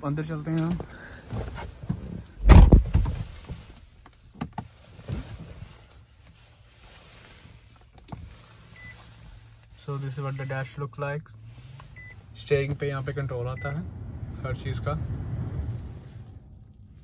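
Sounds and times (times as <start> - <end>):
low thump: 2.4 - 3.2.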